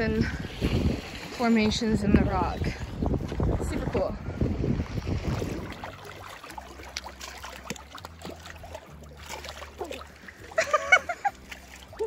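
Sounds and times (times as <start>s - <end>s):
water splashing around wading person: 0.0s - 12.0s
water drips: 5.2s - 12.0s.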